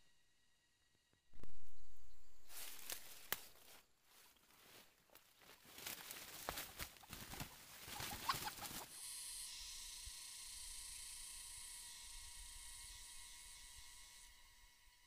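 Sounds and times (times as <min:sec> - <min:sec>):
faint steady tone: 0:00.0 - 0:05.0, 0:08.8 - 0:15.0
rustling through undergrowth: 0:02.4 - 0:09.0
steady high hiss: 0:05.8 - 0:15.0.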